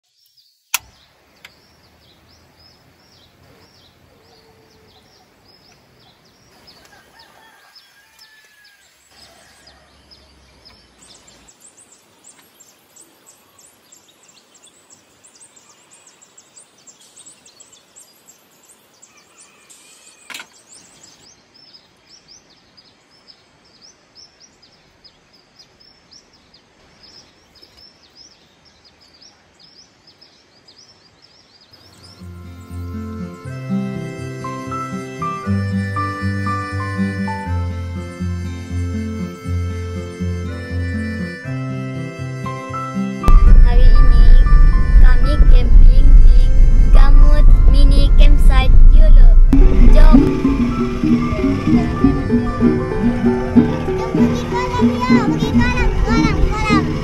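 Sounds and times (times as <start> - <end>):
high-pitched chirping: 43.2 - 57.0.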